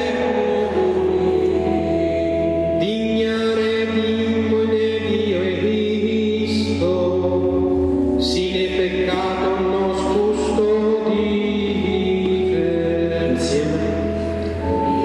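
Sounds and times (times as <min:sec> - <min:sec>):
group singing a hymn: 0:00.0 - 0:03.4.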